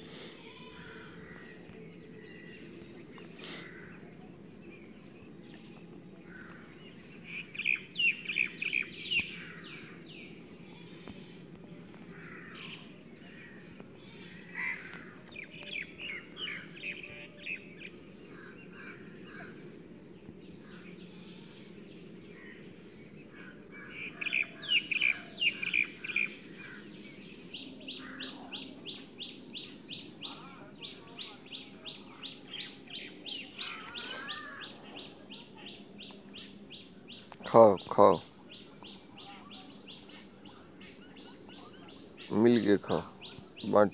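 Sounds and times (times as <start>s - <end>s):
insect drone: 0.0s - 43.9s
birds chirping: 6.4s - 10.9s, 23.4s - 43.9s.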